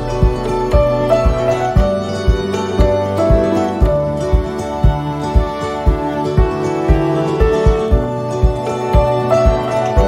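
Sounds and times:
soft instrumental music with beat: 0.0s - 10.0s.

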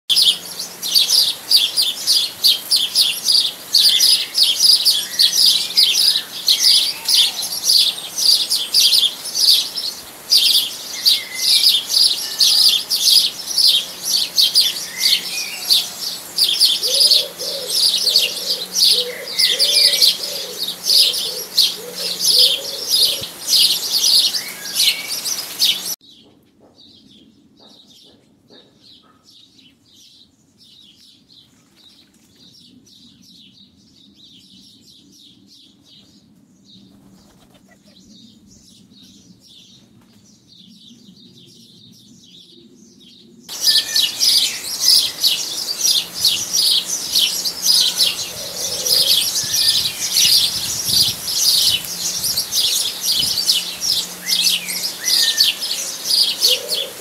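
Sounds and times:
small birds chirping: 0.1s - 57.0s
pigeon cooing: 11.5s - 25.8s, 43.5s - 57.0s.

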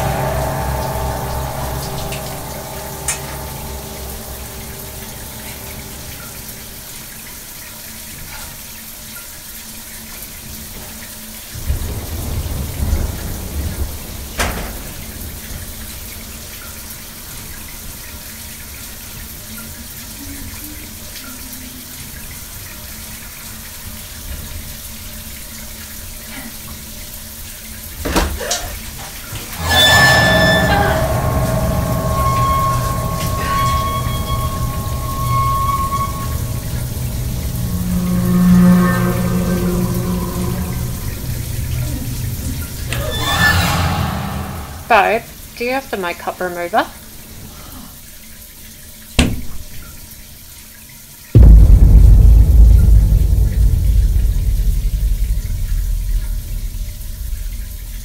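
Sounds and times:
low drone: 0.0s - 7.4s, 29.6s - 45.3s, 51.4s - 58.0s
low rumbles: 0.0s - 7.5s, 29.5s - 45.4s, 51.4s - 58.0s.

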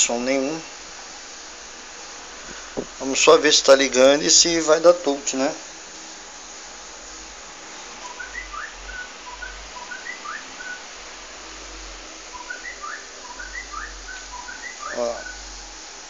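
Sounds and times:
steady background hiss: 0.0s - 16.0s
songbird chirping: 8.0s - 10.9s, 12.3s - 15.5s.

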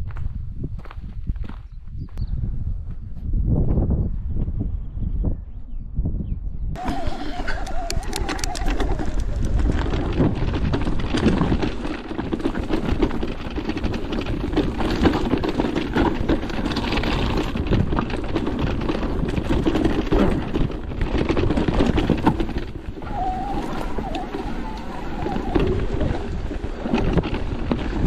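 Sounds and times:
wind noise on microphone: 0.0s - 28.0s
bike tyre and frame rattle: 6.8s - 28.0s.

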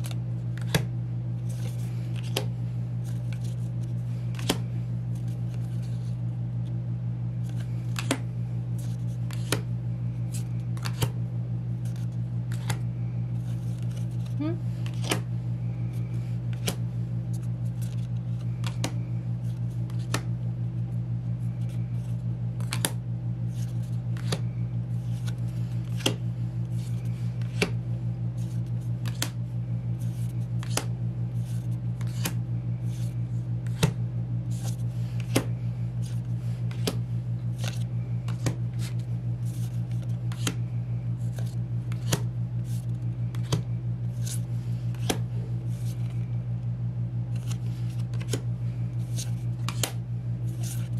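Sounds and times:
steady low hum: 0.0s - 50.9s
photocards snapping when flipped: 4.3s - 4.6s, 49.6s - 50.0s.

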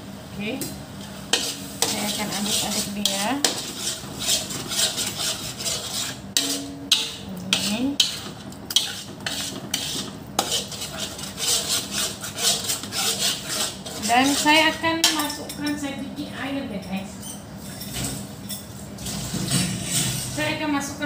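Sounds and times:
metal spatula scraping a wok: 1.2s - 15.4s, 19.0s - 20.6s.

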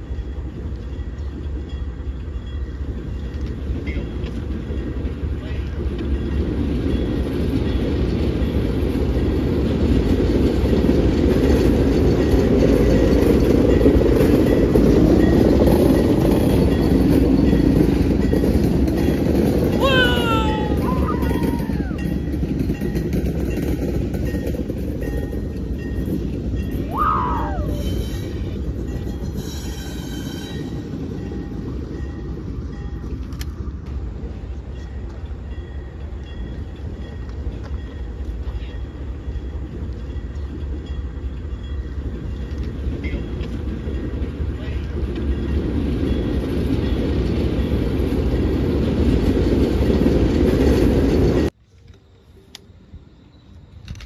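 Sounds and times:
faint wheel clatter on rails: 0.0s - 27.0s, 27.9s - 52.8s
diesel locomotive engine rumble: 0.0s - 54.0s.

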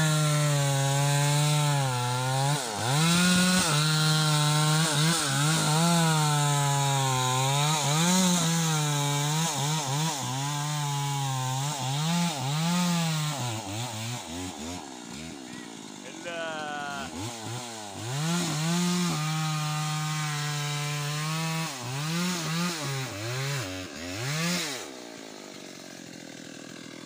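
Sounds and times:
chainsaw cutting wood: 0.0s - 27.0s.

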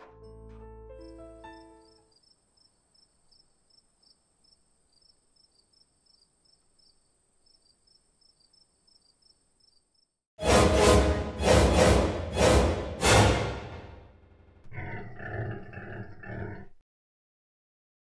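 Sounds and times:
music: 0.0s - 2.1s, 10.4s - 14.3s
crickets chirping: 1.0s - 10.2s
loud music hit: 10.4s - 14.4s.

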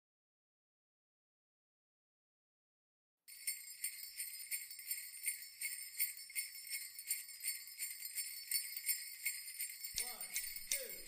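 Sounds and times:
sleigh bells shaking: 3.3s - 11.0s.

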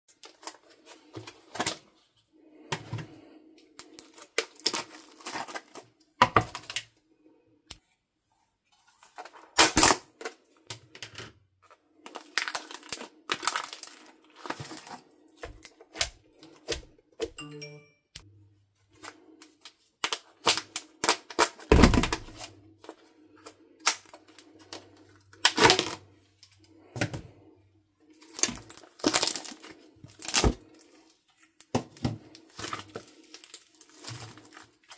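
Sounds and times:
crunchy slime crackling: 3.8s - 5.9s, 12.1s - 16.2s, 28.1s - 31.0s, 32.3s - 34.9s.

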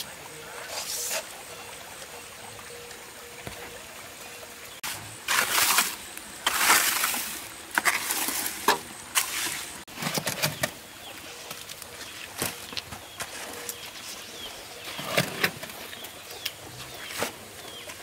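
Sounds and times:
shovel scraping mortar: 4.8s - 10.6s
tool scraping wet mortar: 4.8s - 10.6s.

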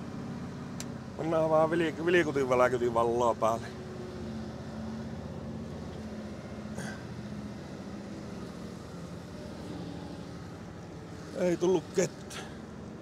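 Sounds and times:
diesel truck engine humming: 0.0s - 13.0s.

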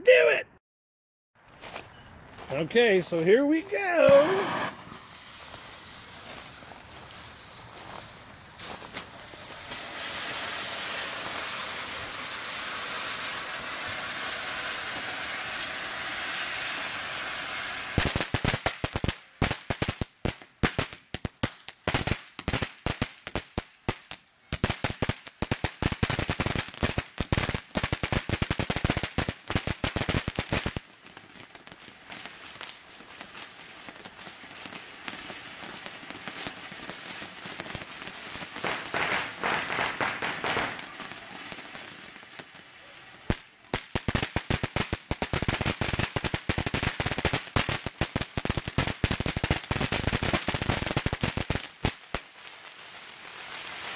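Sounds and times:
firework crackling pops: 2.5s - 53.9s
firework fountain hissing: 2.6s - 18.9s, 27.2s - 53.9s.

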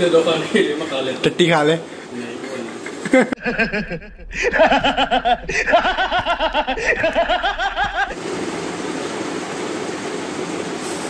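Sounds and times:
steady hiss: 0.0s - 11.0s
person laughing hard: 2.5s - 8.2s.

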